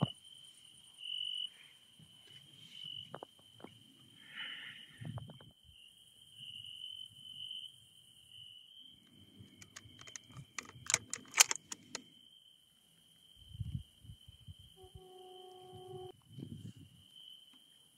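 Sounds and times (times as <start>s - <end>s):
crickets trilling: 0.0s - 17.9s
rifle handling clicks and knocks: 9.4s - 12.0s.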